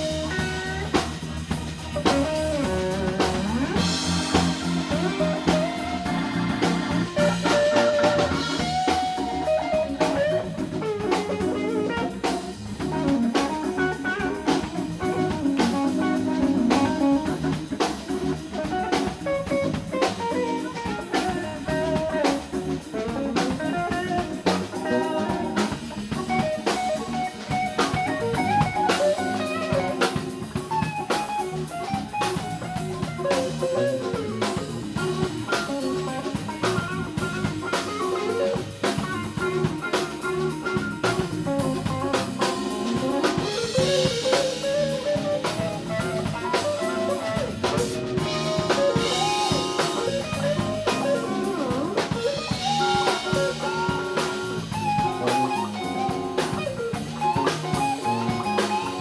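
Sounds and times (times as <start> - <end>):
bass guitar: 0.0 - 59.0
drum kit beat: 0.0 - 59.0
electric guitar: 0.0 - 59.0
organ: 0.0 - 59.0
cymbals: 24.5 - 59.0.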